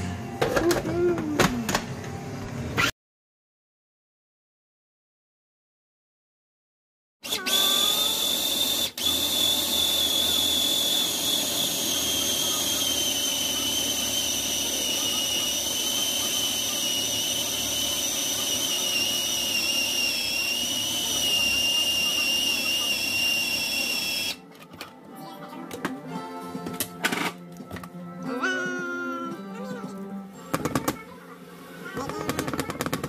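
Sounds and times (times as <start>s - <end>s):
food processor motor whining: 7.2s - 24.5s.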